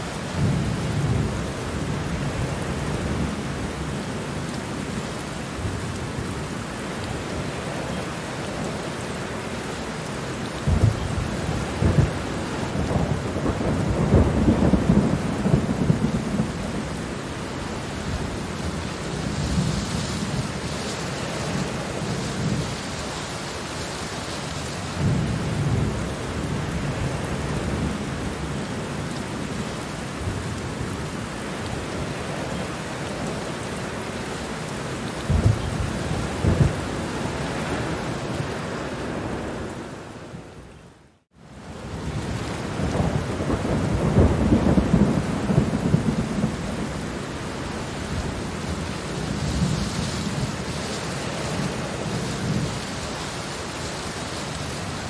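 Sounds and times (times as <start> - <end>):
steady rain: 0.0 - 55.0
thunder rumbling: 10.7 - 22.9, 35.2 - 39.7, 41.8 - 50.9.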